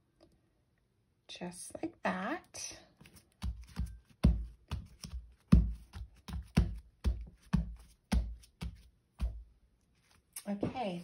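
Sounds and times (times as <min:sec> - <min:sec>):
hands patting paper on table: 0:03.0 - 0:11.0.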